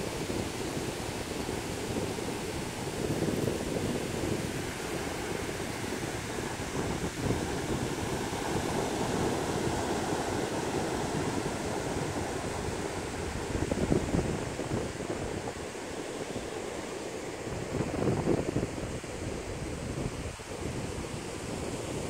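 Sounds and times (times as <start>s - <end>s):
ocean surf breaking: 0.0s - 15.6s
wind buffeting microphone: 0.0s - 22.0s.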